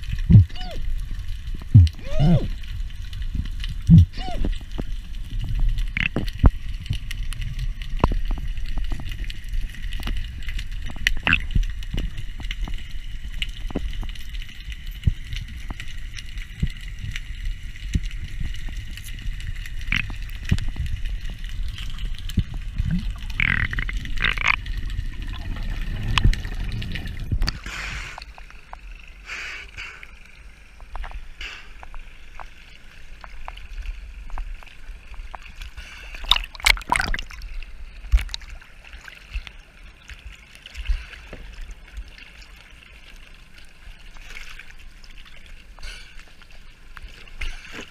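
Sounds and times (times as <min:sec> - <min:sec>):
water sloshing and splashing: 0:00.0 - 0:29.2, 0:29.8 - 0:47.9
underwater rumble of water: 0:00.0 - 0:47.9.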